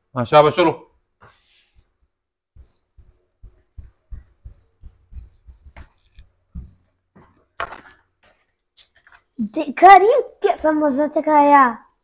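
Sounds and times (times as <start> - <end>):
soft footsteps: 1.0 - 9.2
clothing rustle: 1.0 - 9.3.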